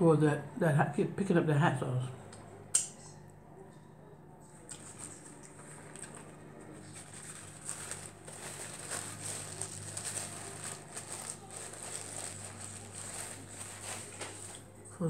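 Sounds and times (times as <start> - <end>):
paper napkin rustling: 4.5 - 14.8.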